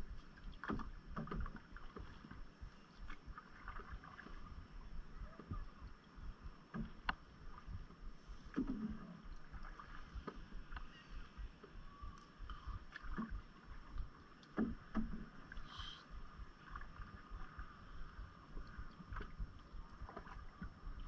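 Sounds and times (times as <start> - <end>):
water splashing around paddle: 0.0 - 5.8, 6.6 - 21.0
paddle knocking on hull: 14.6 - 15.4.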